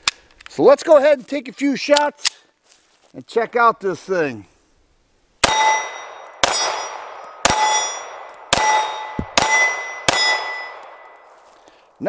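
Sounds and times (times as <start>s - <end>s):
pistol shots: 5.4s - 11.1s
steel plate target ringing: 5.4s - 11.3s.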